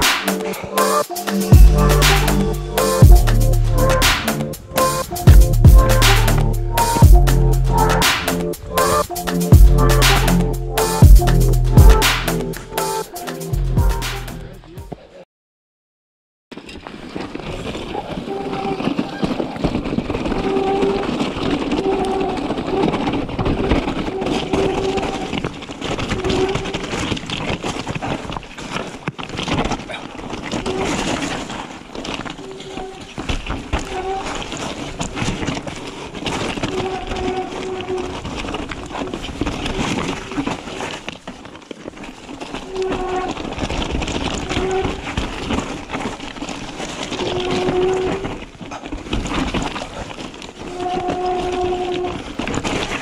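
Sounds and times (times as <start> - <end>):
bike rattling over rocky trail: 16.5 - 53.0
tyres crunching over stones: 16.5 - 53.0.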